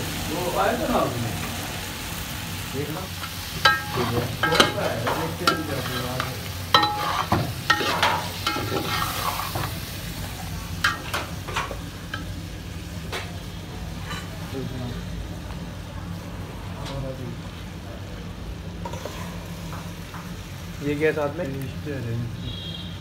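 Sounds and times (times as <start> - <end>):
frying in oil sizzle: 0.0 - 23.0.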